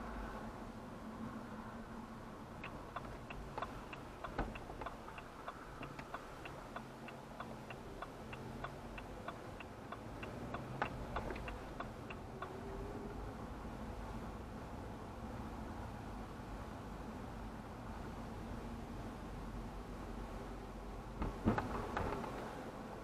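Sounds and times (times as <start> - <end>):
low hum inside car: 0.0 - 23.0
turn signal ticking: 2.6 - 13.2.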